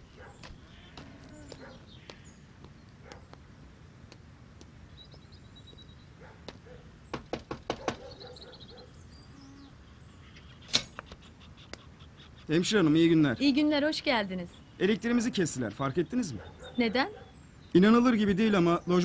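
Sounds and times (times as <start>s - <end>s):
knocking on a door: 7.1s - 8.1s.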